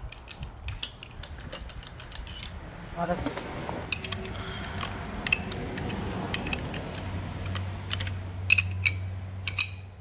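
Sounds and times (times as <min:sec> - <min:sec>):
spanner clinking on metal: 0:03.9 - 0:10.0.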